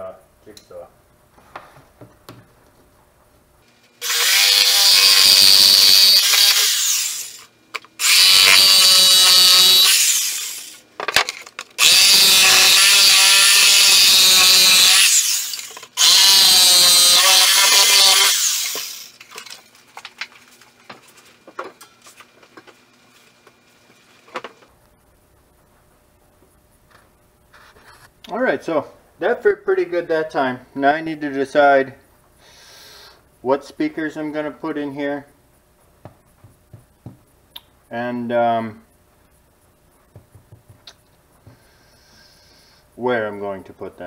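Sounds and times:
jigsaw cutting: 4.0s - 10.8s, 11.8s - 19.2s.

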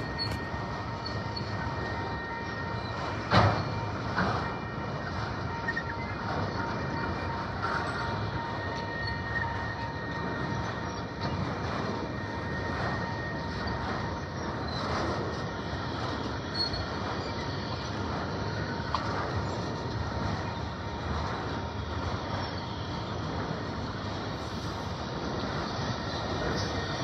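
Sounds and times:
high wheel squeal: 0.0s - 21.1s
freight train wheels rumbling: 0.0s - 27.0s.

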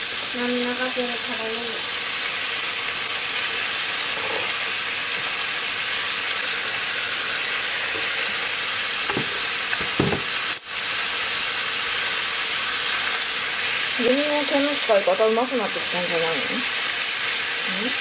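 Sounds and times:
food sizzling in a frying pan: 0.0s - 18.0s
pan knocks: 9.1s - 10.3s.

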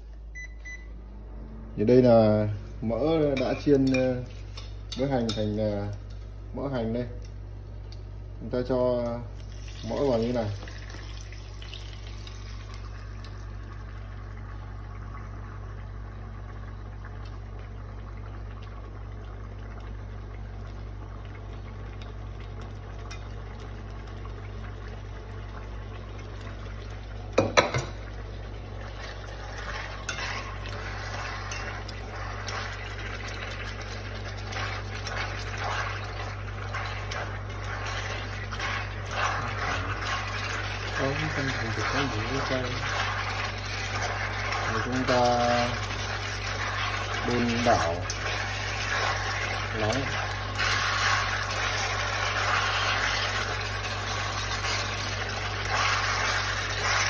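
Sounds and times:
cooktop low hum: 0.0s - 57.0s
oil crackling and sizzling: 2.4s - 57.0s
chopsticks stirring: 3.3s - 6.3s, 29.0s - 57.0s.

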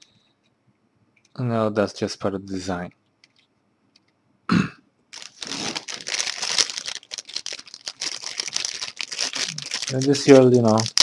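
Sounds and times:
person coughing: 4.5s - 4.8s
plastic bag crinkling: 5.1s - 11.0s.

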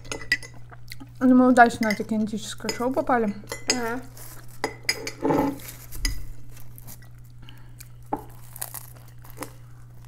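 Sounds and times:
steady low hum: 0.0s - 10.0s
spoon scraping ceramic bowl: 3.5s - 6.2s.

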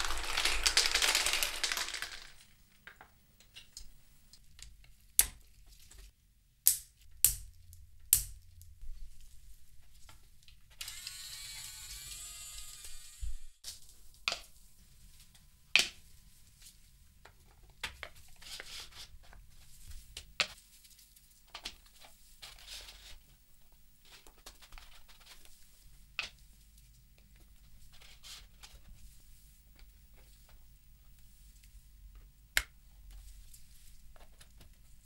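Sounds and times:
plastic pieces clicking and knocking: 0.0s - 5.4s
faint rustling and rubbing: 18.1s - 35.0s.

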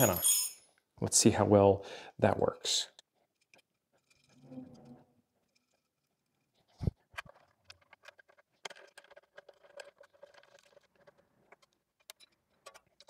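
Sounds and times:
metal parts clicking and tapping: 7.2s - 13.0s.

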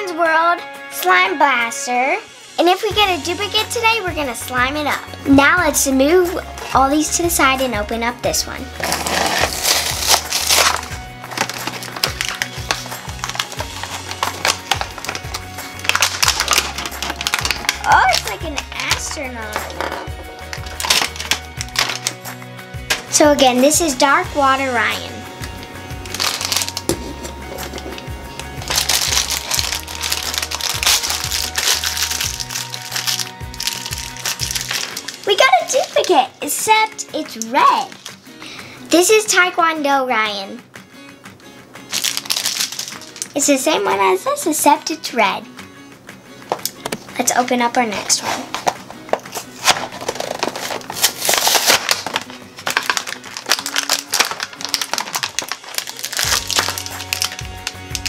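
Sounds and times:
background music with bass line: 2.0s - 35.4s, 55.8s - 58.0s
foil wrapper crinkling: 8.8s - 22.2s, 24.8s - 36.2s, 37.8s - 38.3s, 41.9s - 43.4s, 48.1s - 58.0s.

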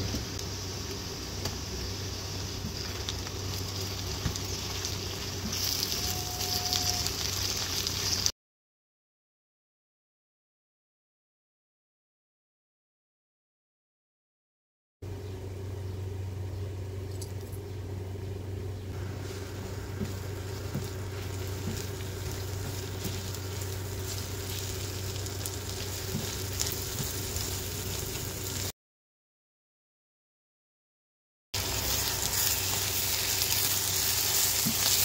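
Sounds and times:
meat sizzling in oil: 0.0s - 8.3s, 19.0s - 28.7s, 31.6s - 35.0s
steady low hum: 15.0s - 28.7s.

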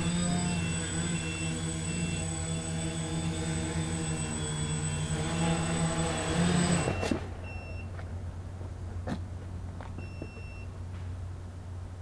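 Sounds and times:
quadcopter buzzing hum: 0.0s - 7.5s.

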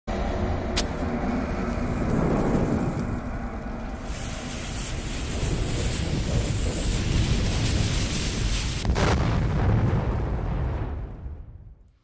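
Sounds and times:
low rumble: 0.1s - 12.0s
bomb fuse hissing: 1.8s - 9.0s.

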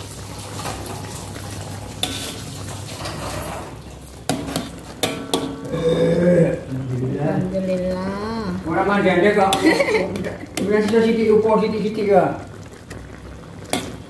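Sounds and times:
metal spoon stirring thick sauce: 2.0s - 5.7s
spoon clanking against wok: 4.3s - 5.7s.

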